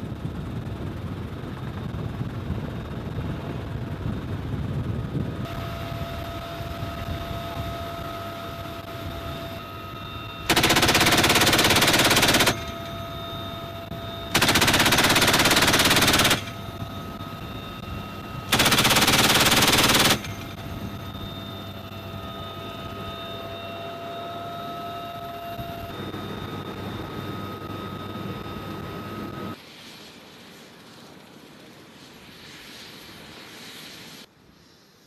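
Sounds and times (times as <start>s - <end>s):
helicopter engine and rotor noise: 0.0s - 34.2s
machine gun bursts: 10.5s - 12.7s, 14.4s - 16.6s, 18.5s - 20.4s.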